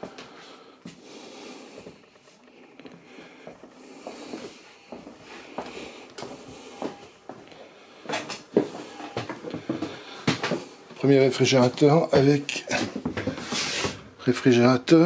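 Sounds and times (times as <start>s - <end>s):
footsteps on wooden floor: 2.8s - 11.0s, 11.6s - 14.1s.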